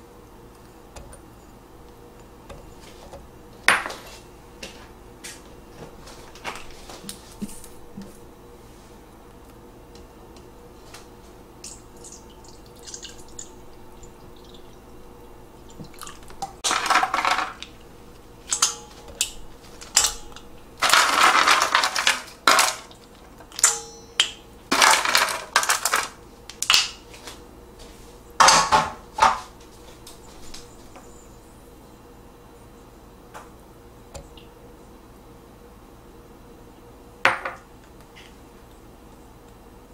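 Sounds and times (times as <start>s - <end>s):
water pouring into steel bowl: 12.0s - 14.8s.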